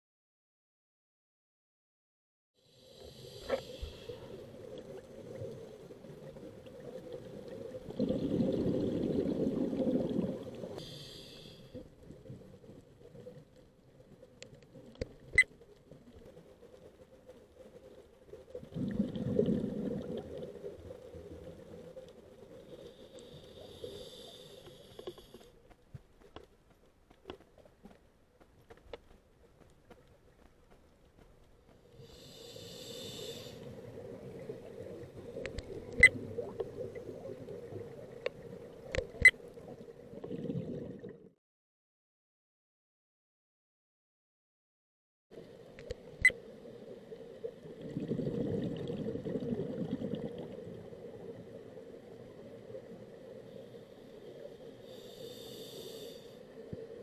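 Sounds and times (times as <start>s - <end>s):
regulator bubbles gurgling underwater: 3.2s - 11.0s, 18.3s - 24.9s, 32.1s - 41.3s, 46.5s - 53.3s
diver's regulator hissing: 32.2s - 33.7s
faint sharp clicks: 35.4s - 36.7s, 38.2s - 39.4s, 45.8s - 46.4s.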